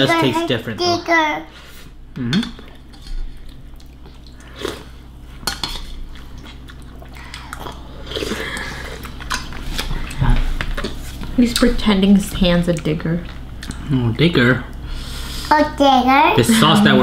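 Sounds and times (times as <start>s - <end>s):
person chewing: 2.3s - 11.2s.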